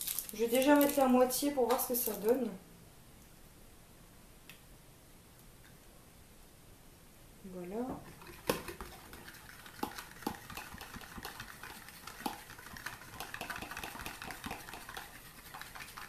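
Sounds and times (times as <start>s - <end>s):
utensil stirring in a bowl: 7.9s - 16.0s
utensil knocking on bowl: 13.1s - 15.1s.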